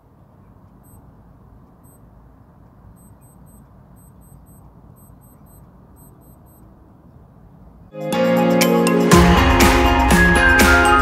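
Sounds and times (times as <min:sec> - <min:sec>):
digital watch timer beeps: 0:00.7 - 0:02.1, 0:02.9 - 0:06.8
short high-pitched alarm beeps: 0:00.8 - 0:01.0, 0:01.8 - 0:02.1, 0:03.0 - 0:06.6.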